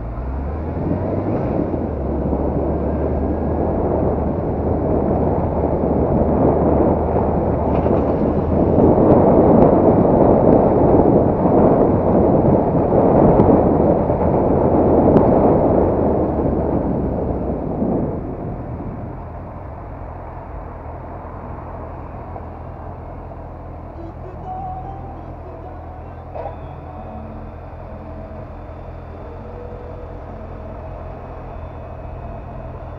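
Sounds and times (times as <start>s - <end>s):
motorcycle engine: 0.0s - 32.9s
wind rush: 0.0s - 32.9s.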